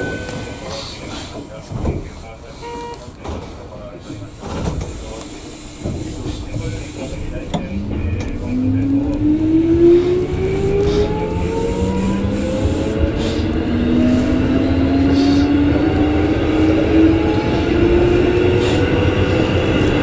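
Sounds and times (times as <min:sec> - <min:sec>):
wheels rumbling on rail: 0:00.0 - 0:20.0
train motor whine: 0:04.4 - 0:20.0.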